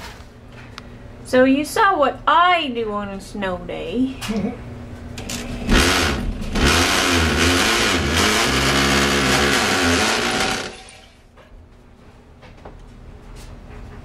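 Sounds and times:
electric drill boring into wall: 5.2s - 11.2s.

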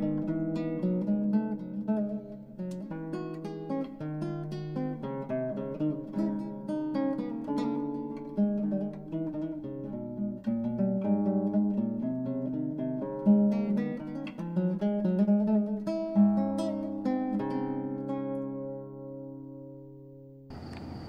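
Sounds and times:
acoustic guitar music: 0.0s - 20.5s.

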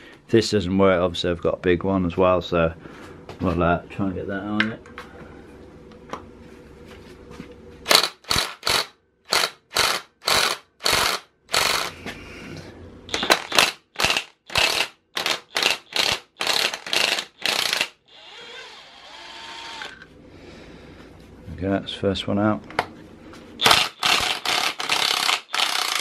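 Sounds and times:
impact wrench hammering: 7.9s - 11.9s, 13.1s - 18.0s, 23.6s - 26.0s.

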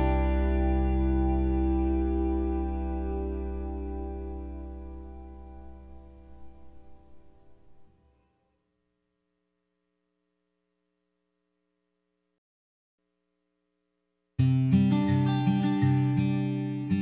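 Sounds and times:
background music: 0.0s - 7.9s.

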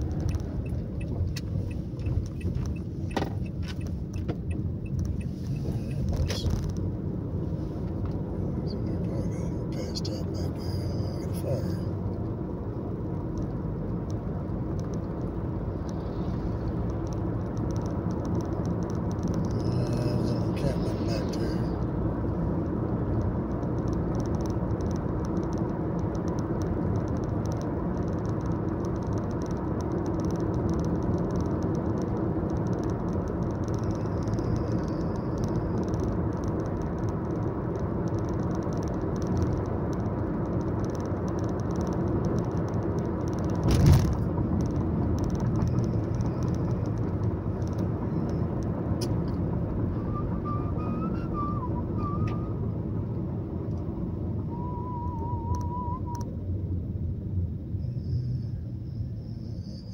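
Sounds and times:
road and engine noise: 0.0s - 59.9s.

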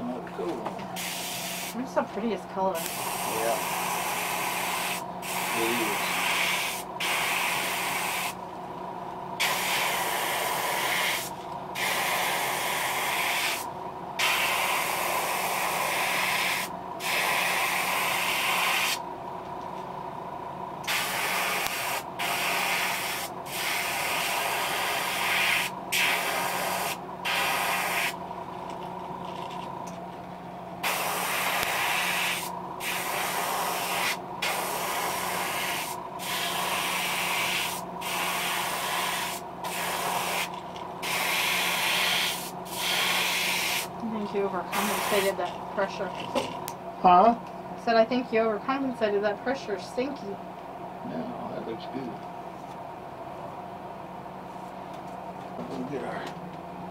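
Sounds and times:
steady low hum: 0.0s - 56.9s
airbrush spraying hiss: 1.0s - 1.8s, 2.8s - 8.4s, 9.4s - 19.0s, 20.9s - 28.2s, 30.8s - 43.9s, 44.7s - 45.4s.

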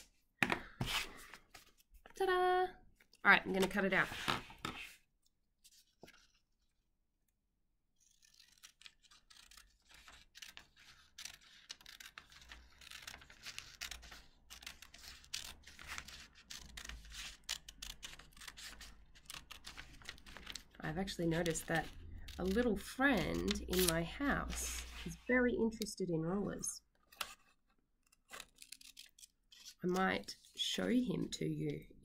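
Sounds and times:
scissors cutting paper: 8.0s - 25.1s, 28.0s - 30.4s.

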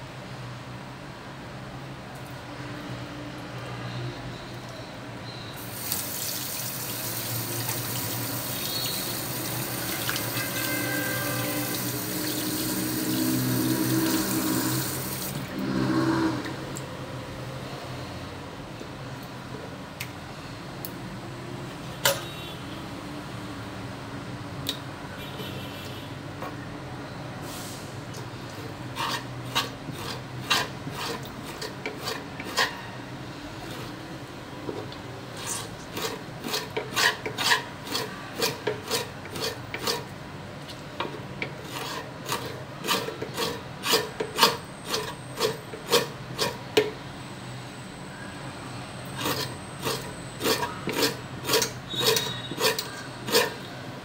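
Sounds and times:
hand tool scraping on wooden board: 29.0s - 32.8s, 35.4s - 40.1s, 41.5s - 46.6s, 49.2s - 53.6s.

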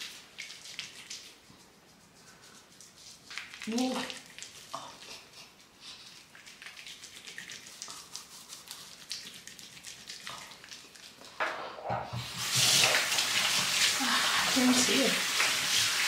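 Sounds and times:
hands rubbing foamy cleanser on skin: 0.0s - 11.4s
tap running into sink: 11.4s - 13.8s.

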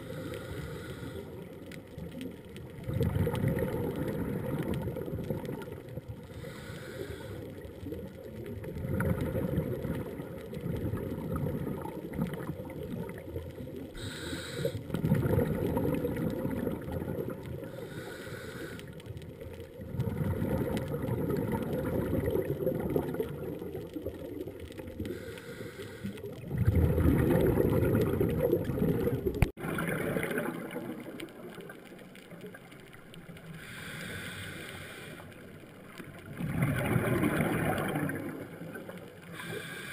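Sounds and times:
diver's exhaled bubbles rumbling: 1.8s - 6.6s, 7.6s - 14.2s, 14.8s - 17.8s, 19.3s - 25.2s, 26.2s - 33.5s, 36.0s - 39.4s
regulator hiss: 14.0s - 14.8s, 17.8s - 18.8s, 33.6s - 35.3s, 39.3s - 39.9s.

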